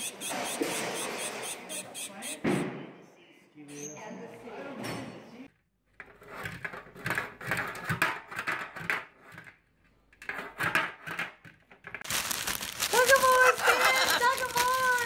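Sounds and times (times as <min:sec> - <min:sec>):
bird scraping metal pan: 0:13.2 - 0:14.5.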